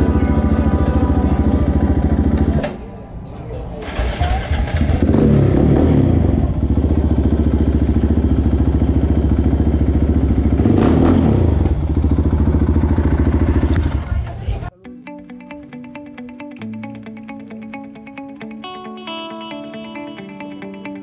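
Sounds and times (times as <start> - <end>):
motorcycle engine idling and revving: 0.0 - 2.7, 3.8 - 14.7.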